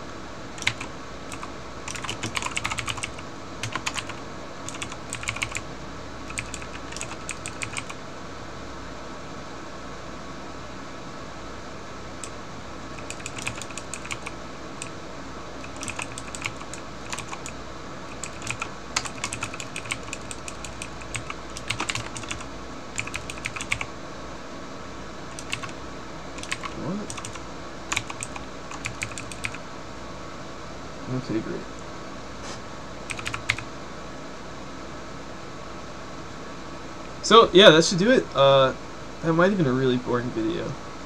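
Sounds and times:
steady low background hum: 0:00.0 - 0:41.0
computer keyboard typing: 0:00.6 - 0:05.6, 0:06.3 - 0:08.0, 0:12.2 - 0:15.0, 0:15.6 - 0:23.9, 0:25.3 - 0:25.8, 0:26.4 - 0:29.6, 0:33.1 - 0:33.7.

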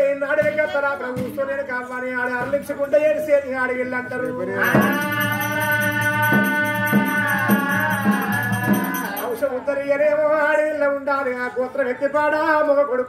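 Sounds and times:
held melodic tones: 0:04.1 - 0:09.6
low drum beats: 0:04.2 - 0:09.4
fast metallic jingling rattle: 0:04.2 - 0:09.6.

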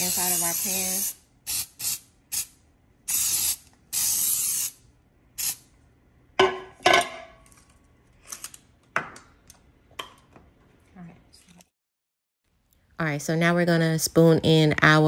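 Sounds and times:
aerosol spray hissing: 0:00.0 - 0:02.0
metal pan clanks: 0:06.4 - 0:07.4.

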